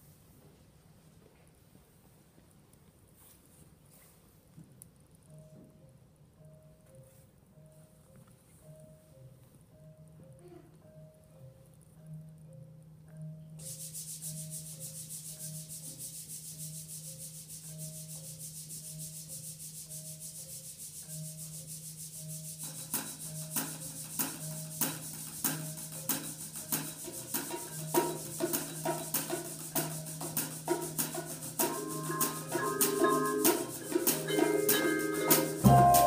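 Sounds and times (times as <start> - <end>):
marimba notes: 5.3 - 36.0
soft mallet figure: 5.3 - 36.0
shaker-like hiss: 13.6 - 36.0
percussion clicks and hits: 21.0 - 36.0
low held note: 35.6 - 36.0.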